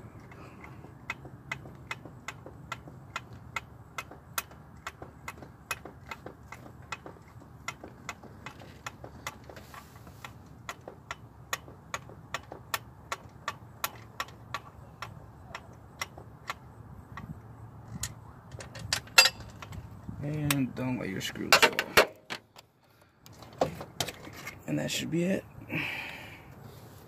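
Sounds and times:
socket ratchet clicking: 0.2s - 19.8s.

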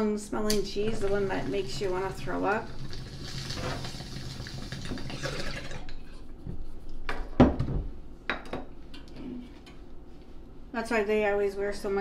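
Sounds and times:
bong water bubbling: 0.8s - 6.2s.

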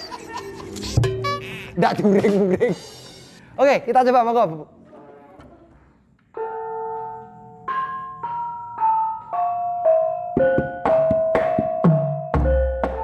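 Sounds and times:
gamelan ensemble playing: 0.3s - 3.4s.

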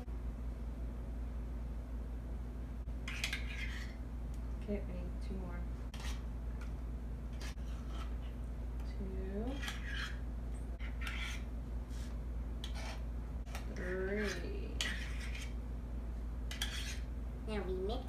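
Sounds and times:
metal spoons scraping a bowl: 3.1s - 4.0s, 9.4s - 10.2s, 10.8s - 11.5s, 12.6s - 15.6s, 16.5s - 17.1s.

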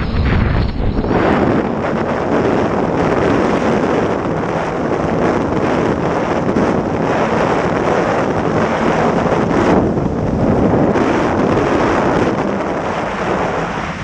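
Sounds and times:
jet ski engine drone: 0.0s - 14.0s
wind noise on microphone: 0.0s - 14.0s.

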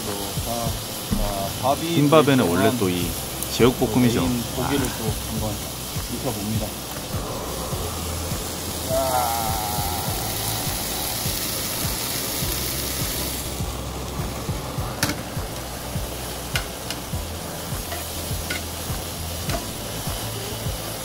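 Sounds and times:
pork sizzling in frying pan: 0.0s - 21.0s
chopsticks clicking against pan: 16.5s - 17.1s, 17.9s - 18.8s, 19.4s - 19.7s.

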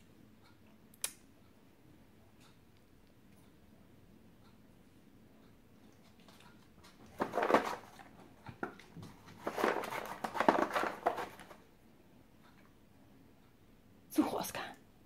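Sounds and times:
dog rummaging through toys: 6.9s - 11.6s.

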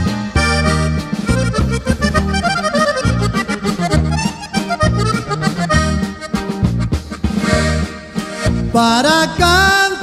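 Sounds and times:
accordion melody: 0.0s - 10.0s
bass notes: 0.0s - 10.0s
strummed guitar chords: 0.0s - 10.0s.

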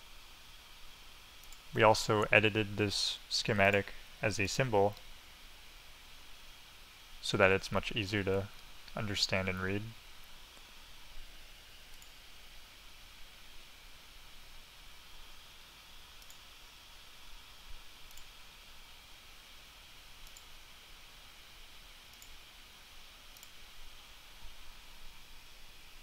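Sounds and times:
low background hiss: 0.0s - 26.0s
computer mouse clicks: 1.4s - 1.7s, 11.9s - 12.2s, 16.2s - 16.5s, 18.0s - 18.3s, 20.2s - 20.5s, 22.1s - 22.4s, 23.4s - 23.6s.

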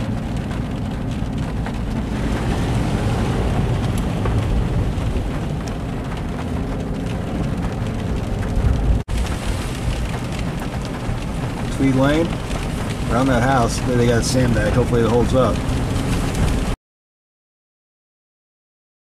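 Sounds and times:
car driving on wet road: 0.0s - 16.8s
rain on car roof: 0.0s - 16.8s.

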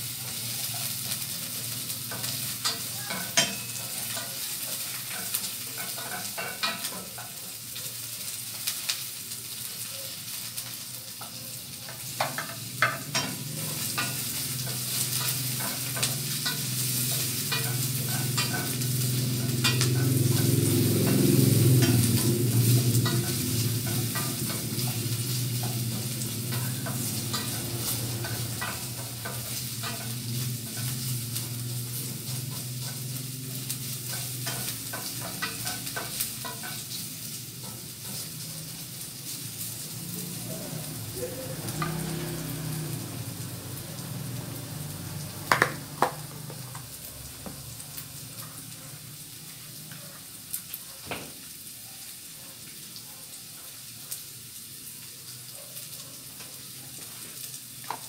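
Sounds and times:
food sizzling in hot oil: 0.0s - 58.0s
wooden spatula knocking on pan: 45.5s - 46.6s.

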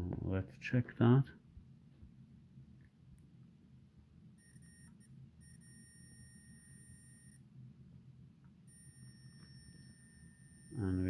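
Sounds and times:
multimeter buzzer beeping: 4.4s - 7.4s, 8.7s - 11.0s.

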